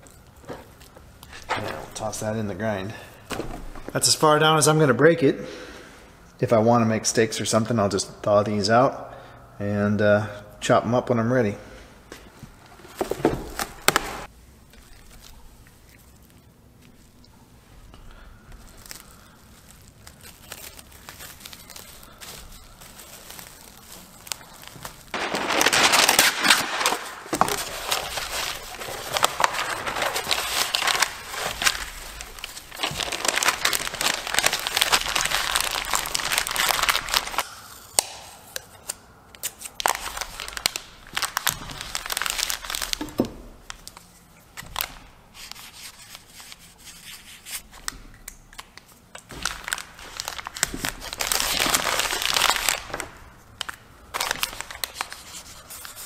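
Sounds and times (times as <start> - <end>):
freezer paper crinkling: 12.7 - 37.4, 39.4 - 56.0.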